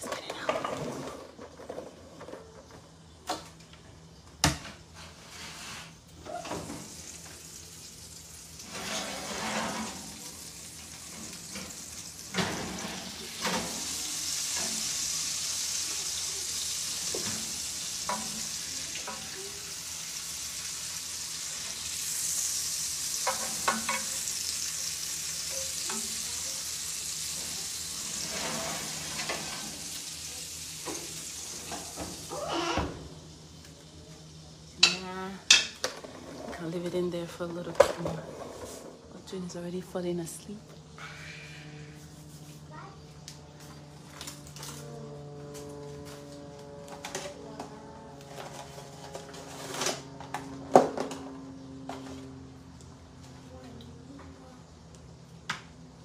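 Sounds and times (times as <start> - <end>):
steak sizzling in a pan: 6.8 - 32.8.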